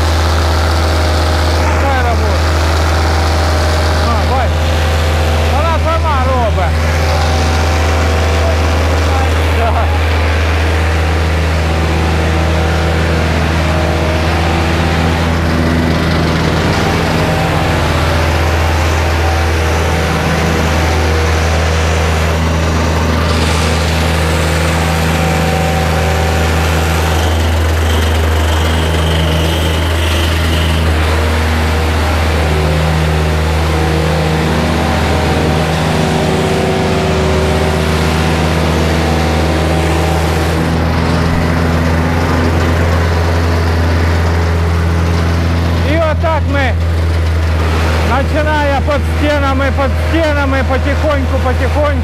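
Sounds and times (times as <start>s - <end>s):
plate compactor droning: 0.0s - 52.0s.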